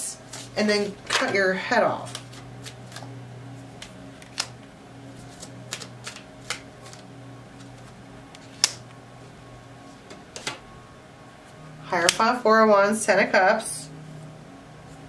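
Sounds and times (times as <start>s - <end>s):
low steady hum: 0.0s - 15.0s
cards snapping on wooden table: 5.4s - 7.0s, 8.4s - 8.8s.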